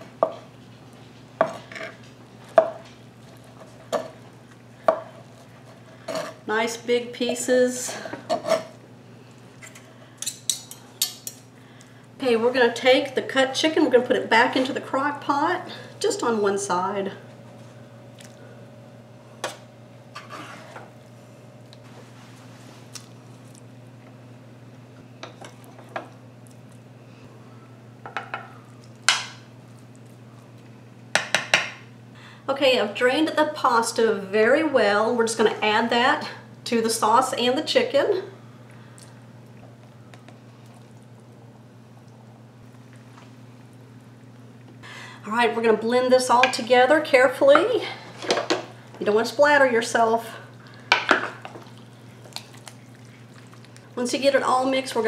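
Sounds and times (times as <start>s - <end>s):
steady low hum: 0.0s - 55.0s
wet squelches of food: 18.1s - 18.5s, 50.5s - 54.0s.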